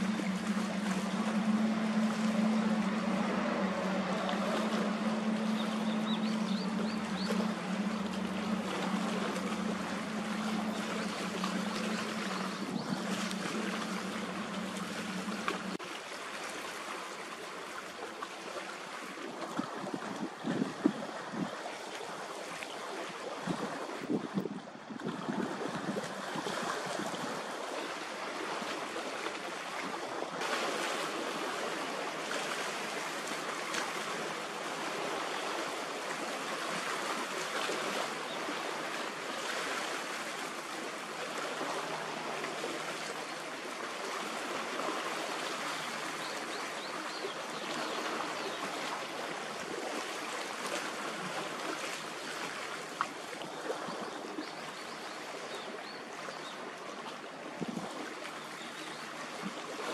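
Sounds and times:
faint low hum: 0.0s - 15.8s
waves washing along shore: 0.0s - 59.9s.

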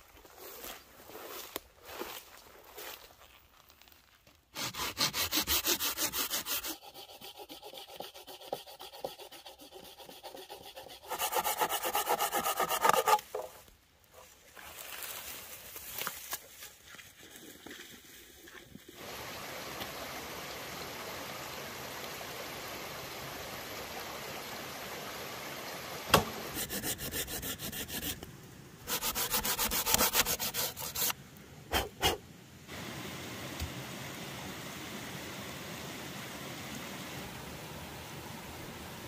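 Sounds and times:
background hiss: 0.0s - 39.0s
hand saw cutting log: 4.6s - 13.5s, 26.1s - 28.2s, 28.9s - 32.2s.

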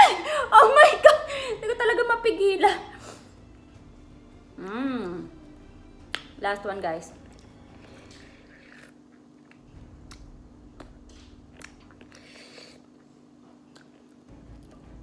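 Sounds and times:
person chewing with wet smacks: 7.2s - 14.8s.

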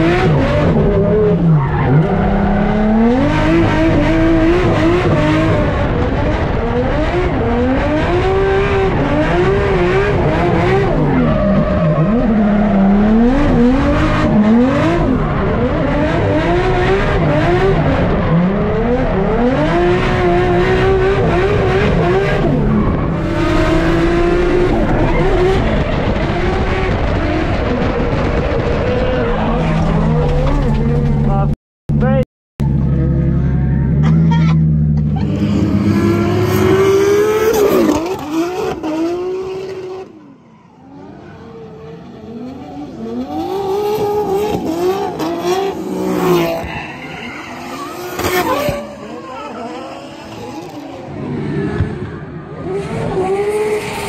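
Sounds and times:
car engine revving: 0.0s - 40.2s, 40.8s - 54.0s
tyres squealing and skidding: 1.0s - 4.1s, 10.3s - 16.1s, 39.9s - 54.0s.

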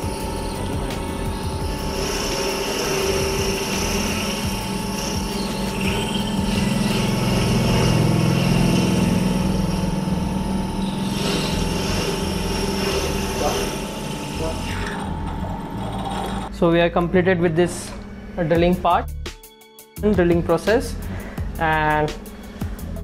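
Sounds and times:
milling machine drilling metal: 0.0s - 16.5s.

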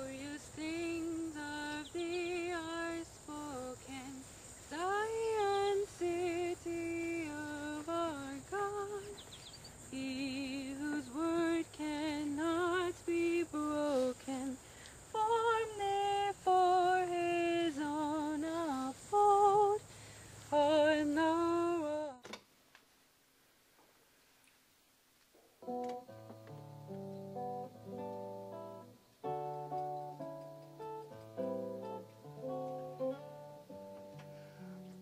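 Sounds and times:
woman singing a hymn: 0.0s - 22.3s.

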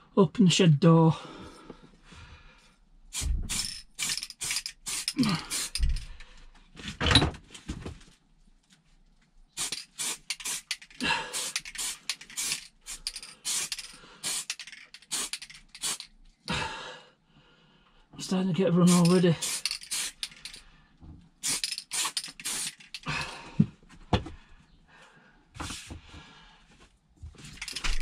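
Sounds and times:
aerosol spray can spurts: 3.2s - 6.1s, 9.6s - 16.2s, 18.9s - 20.6s, 21.4s - 23.1s, 27.6s - 28.0s.

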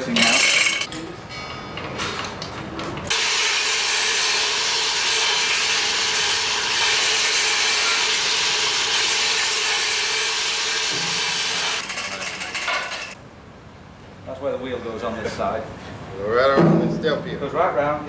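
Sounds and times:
power tool hissing and humming: 3.1s - 11.8s.

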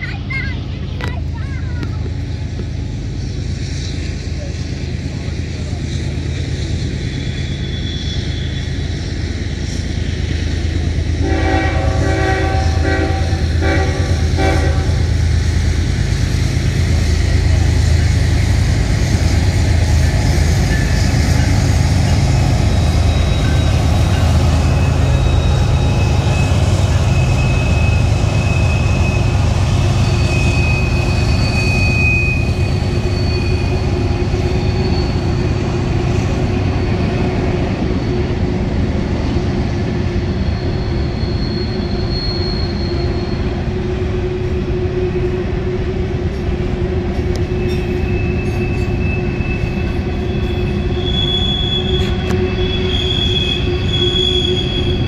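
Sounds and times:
diesel locomotive rumbling: 0.0s - 55.0s
wheels squealing: 5.6s - 11.0s, 14.2s - 43.7s, 47.2s - 55.0s
train air horn blasts: 11.2s - 15.1s.

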